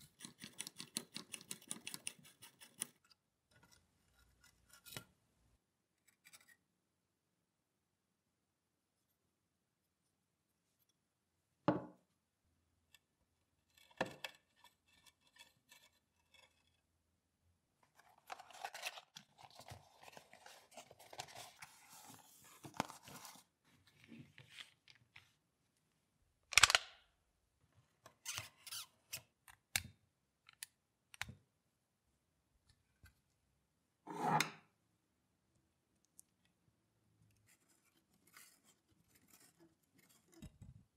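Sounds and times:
knocks on workbench: 0:11.7 - 0:11.9.

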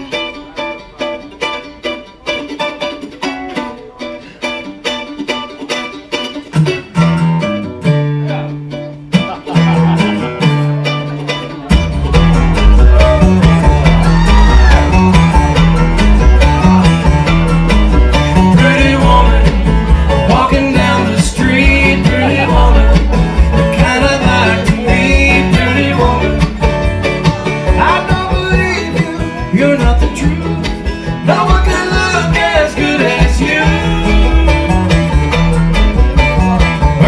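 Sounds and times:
acoustic guitar: 0:00.0 - 0:37.0
banjo: 0:00.0 - 0:37.0
mandolin: 0:00.0 - 0:37.0
upright bass: 0:00.0 - 0:37.0
man singing: 0:18.1 - 0:35.2.

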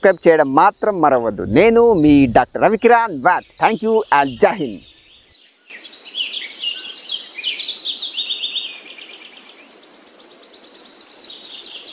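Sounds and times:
birds chirping: 0:00.0 - 0:05.3.

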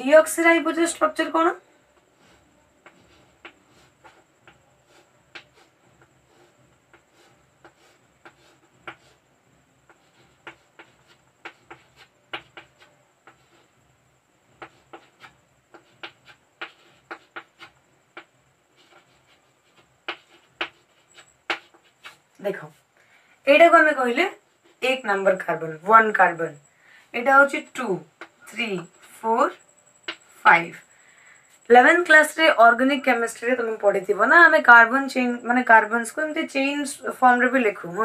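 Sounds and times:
handwriting scratchy strokes: 0:02.0 - 0:13.8, 0:14.5 - 0:22.8.

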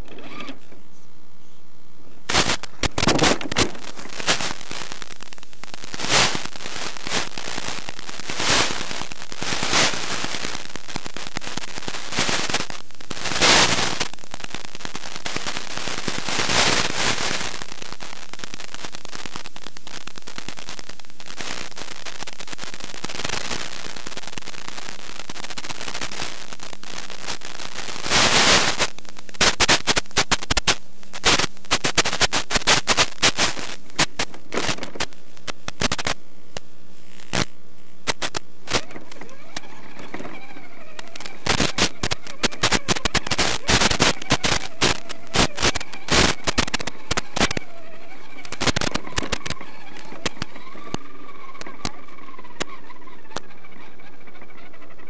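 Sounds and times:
crackles and pops: 0:00.0 - 0:55.0
radio static hiss: 0:00.0 - 0:55.0.

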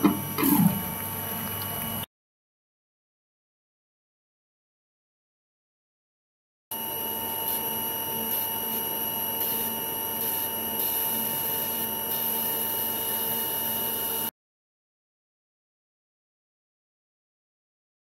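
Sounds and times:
electrical whine over hiss: 0:06.8 - 0:14.3.

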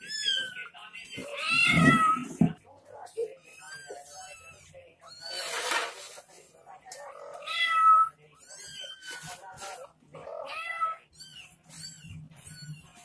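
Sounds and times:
cat meowing: 0:00.0 - 0:02.4, 0:03.4 - 0:05.5, 0:07.0 - 0:09.2, 0:10.2 - 0:13.0.

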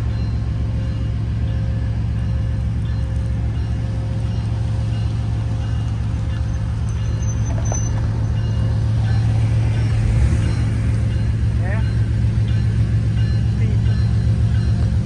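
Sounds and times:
traffic engine drone: 0:00.0 - 0:15.0.

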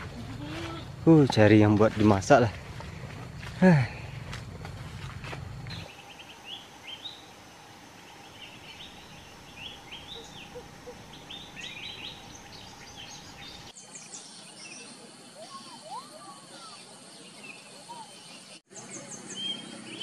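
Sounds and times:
small birds chirping: 0:00.0 - 0:20.0
faint steady hum: 0:02.7 - 0:13.7.

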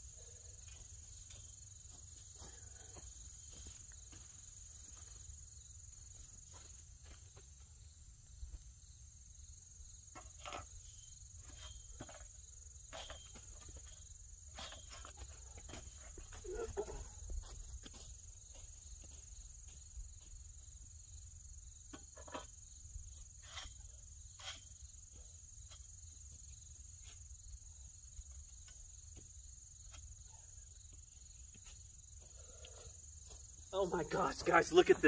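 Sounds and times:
crickets trilling: 0:00.0 - 0:35.0.

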